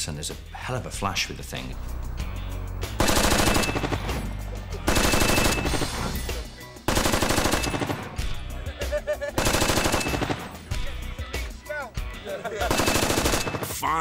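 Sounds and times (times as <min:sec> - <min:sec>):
minigun firing bursts: 0:01.8 - 0:08.4, 0:09.4 - 0:10.8, 0:12.7 - 0:13.8.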